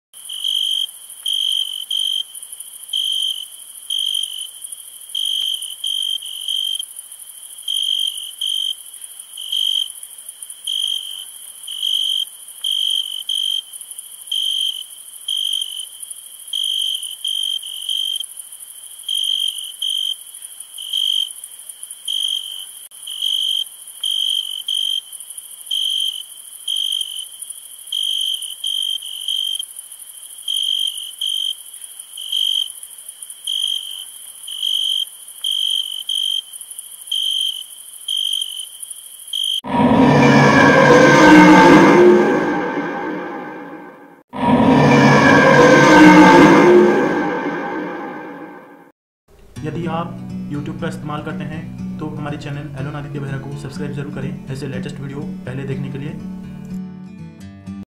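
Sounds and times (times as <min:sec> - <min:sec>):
insects chirping: 0:00.2 - 0:39.7.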